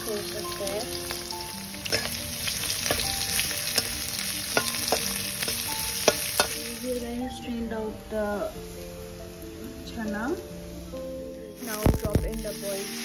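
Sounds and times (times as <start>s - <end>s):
onions sizzling in hot oil: 0.0s - 10.9s, 11.5s - 13.0s.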